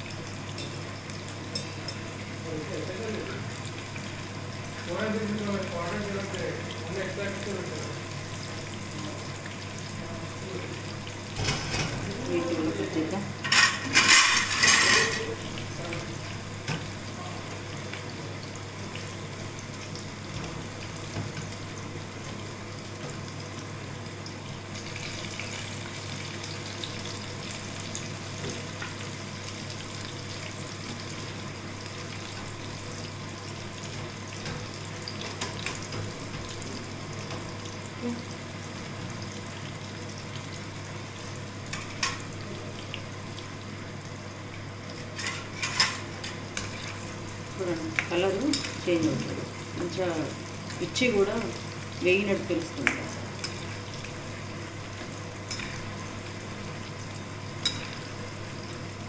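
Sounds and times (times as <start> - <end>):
chillies sizzling in hot oil: 0.0 - 59.0.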